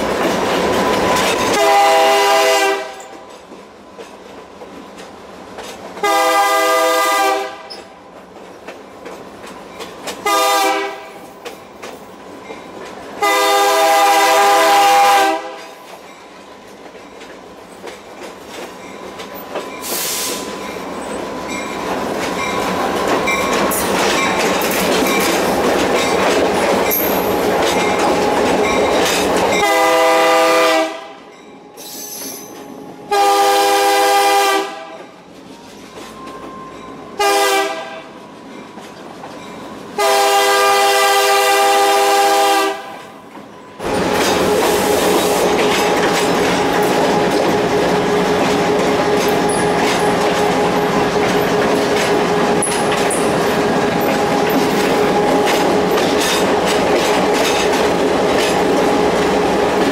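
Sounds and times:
train wheels on rails: 0.0s - 59.9s
locomotive air horn blasts: 1.5s - 3.1s, 6.0s - 7.8s, 10.2s - 11.2s, 13.2s - 15.8s, 29.6s - 31.2s, 33.1s - 35.0s, 37.2s - 38.1s, 40.0s - 43.1s.

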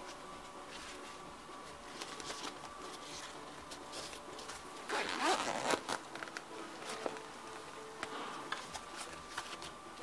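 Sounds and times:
fabric rustling: 0.0s - 7.4s
zipper rasping open: 4.9s - 6.0s.

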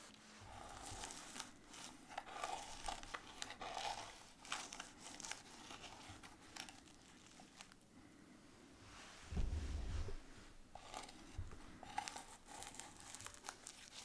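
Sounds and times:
metal spatula scraping paper: 0.0s - 7.8s, 10.7s - 14.0s.

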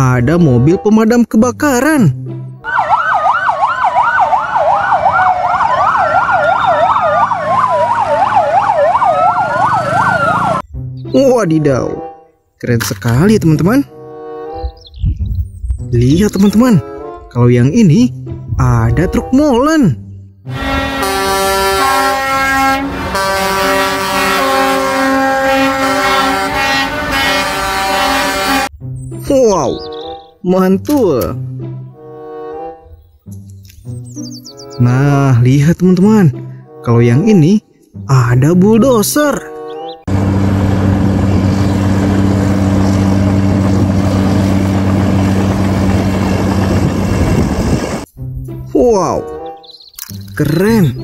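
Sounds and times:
siren fast yelp: 2.6s - 10.6s
siren slow wail: 2.6s - 10.6s
truck air horns sounding: 20.5s - 28.8s, 31.9s - 33.0s.

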